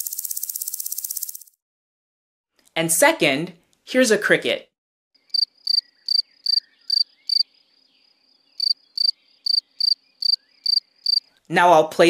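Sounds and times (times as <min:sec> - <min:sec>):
cricket chirping: 0:00.0 - 0:01.6, 0:05.2 - 0:11.3.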